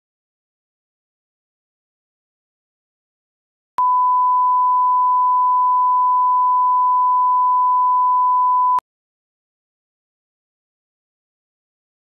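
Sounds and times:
steady test tone beep: 3.8s - 8.8s.

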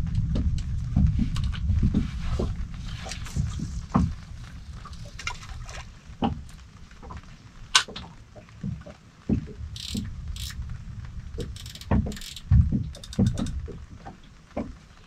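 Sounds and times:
low rumble: 0.0s - 7.7s
water lapping against a boat hull: 0.2s - 10.6s, 11.3s - 15.0s.

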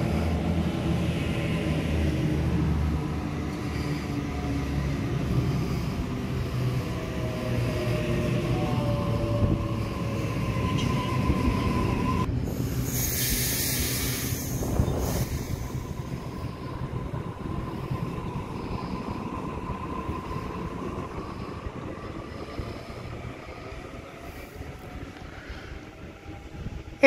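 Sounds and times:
electric train rumbling past: 0.0s - 27.0s
loud hissing burst: 12.5s - 15.8s.

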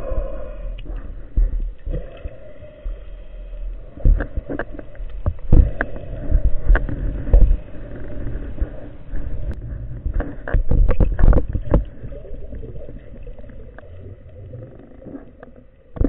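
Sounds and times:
underwater water rush: 0.0s - 16.0s
sharp knocks underwater: 4.0s - 7.6s, 9.5s - 13.9s.

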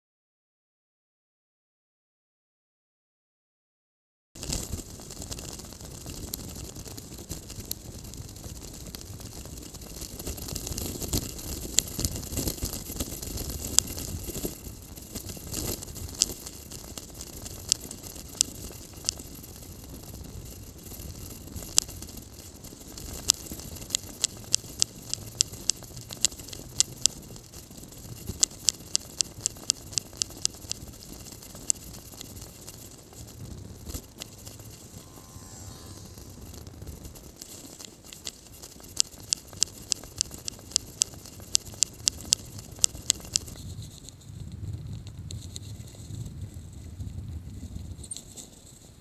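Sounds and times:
low rumble of bicycle ride: 4.4s - 49.0s
sharp clicks: 22.9s - 35.2s, 36.0s - 43.7s.

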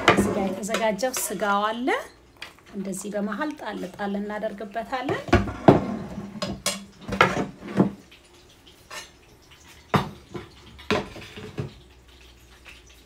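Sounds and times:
metal spoon scraping frying pan: 8.8s - 9.3s.

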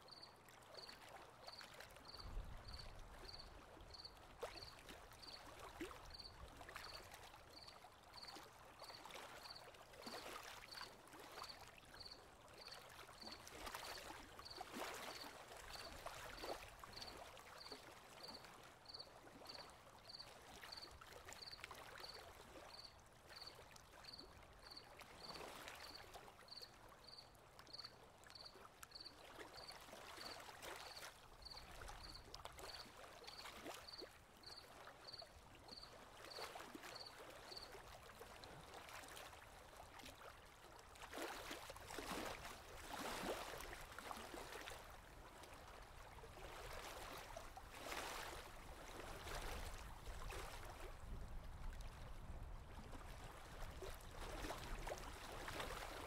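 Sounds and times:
insect chirping: 2.1s - 5.4s, 33.9s - 35.8s, 37.0s - 37.6s
small waves washing in: 41.0s - 56.0s.

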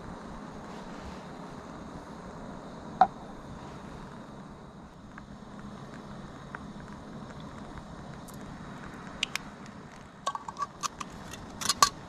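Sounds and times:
low background rush: 0.0s - 12.0s
small hard objects clicking: 9.1s - 12.0s.

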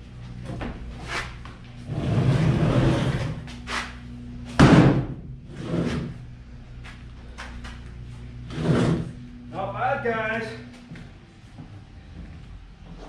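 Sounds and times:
frame scraping on concrete: 1.0s - 4.0s, 5.5s - 6.2s, 8.4s - 9.3s.

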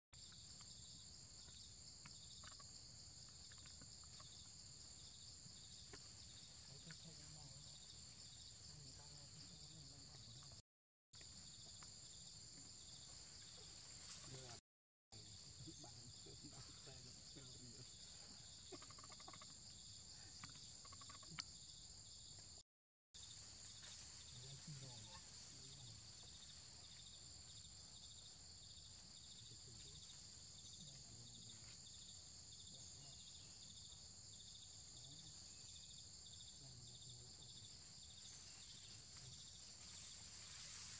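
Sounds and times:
faint chirps: 0.2s - 10.6s, 11.2s - 22.6s, 23.2s - 40.9s
insect chorus trilling: 0.2s - 10.6s, 11.2s - 14.6s, 15.2s - 22.6s, 23.2s - 40.9s.

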